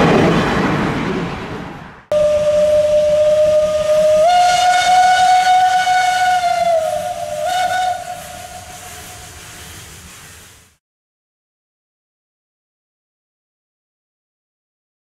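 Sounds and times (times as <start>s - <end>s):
steam locomotive whistle: 2.1s - 9.7s.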